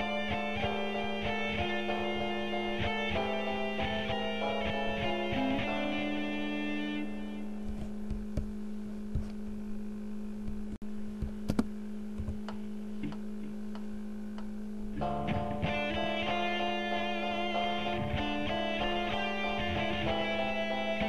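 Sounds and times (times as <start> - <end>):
plucked guitar music: 0.0 - 7.9, 14.9 - 21.0.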